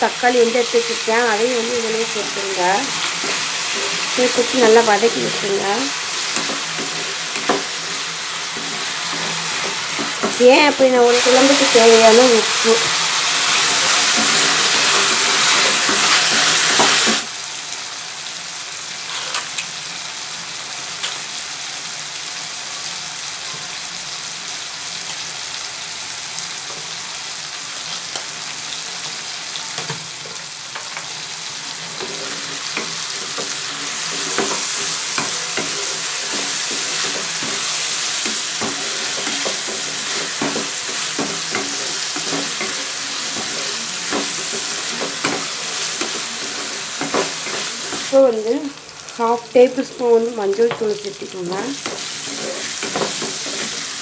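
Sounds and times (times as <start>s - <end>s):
vegetables sizzling in hot oil: 0.0s - 54.0s
wooden spatula scraping a pan: 2.8s - 10.5s, 11.1s - 17.2s, 31.7s - 48.1s, 51.7s - 54.0s.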